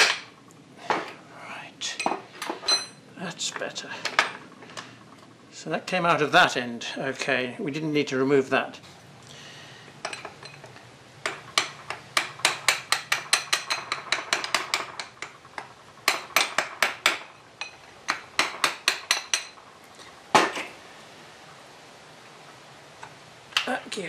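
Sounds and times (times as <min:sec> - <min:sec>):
hammer tapping metal: 0:11.2 - 0:19.6.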